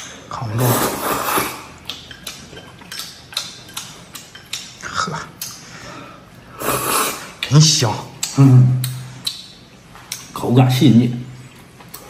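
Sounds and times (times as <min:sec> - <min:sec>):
chopsticks clicking against a bowl: 0:01.8 - 0:04.8, 0:05.4 - 0:05.6, 0:08.2 - 0:10.4.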